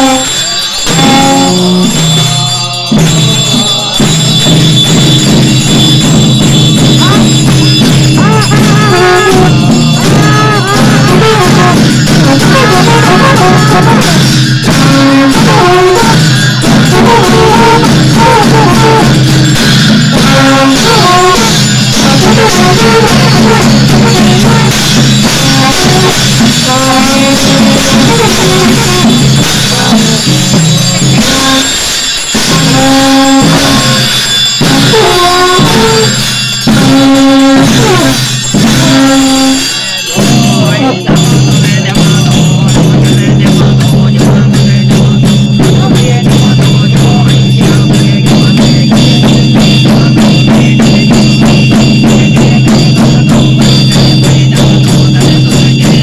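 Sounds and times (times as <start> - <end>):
low horn drone: 0.0 - 2.0, 8.1 - 19.4, 20.1 - 39.8
drumming: 0.0 - 56.0
hand bells and cymbals ringing: 0.0 - 56.0
ornamented wind instrument melody: 0.0 - 56.0.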